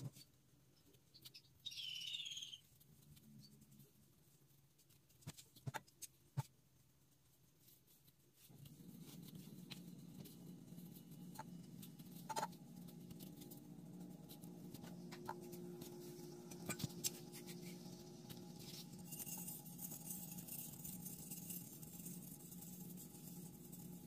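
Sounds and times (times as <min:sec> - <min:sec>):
steady low hum: 0:08.3 - 0:24.0.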